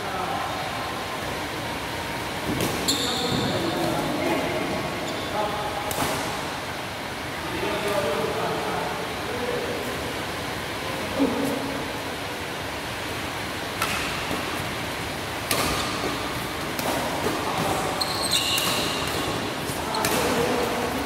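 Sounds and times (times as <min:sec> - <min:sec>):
shoe squeaks on court floor: 0:02.8 - 0:03.7, 0:17.8 - 0:19.1
rackets striking shuttlecock: 0:15.4 - 0:20.7.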